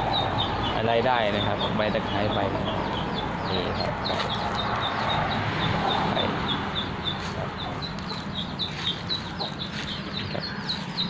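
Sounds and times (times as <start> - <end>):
chicks peeping: 0.0 - 11.0.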